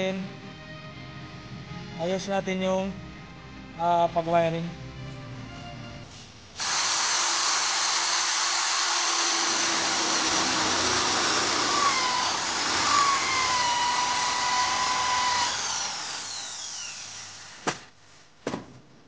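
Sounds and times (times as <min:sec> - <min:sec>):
electric drill boring into wood: 0:06.6 - 0:17.7.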